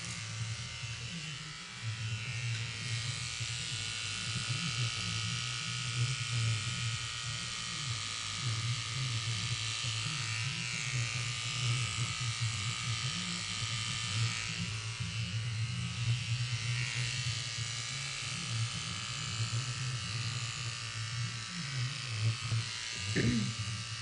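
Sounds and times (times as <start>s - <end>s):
electric hair clippers buzzing: 0.0s - 24.0s.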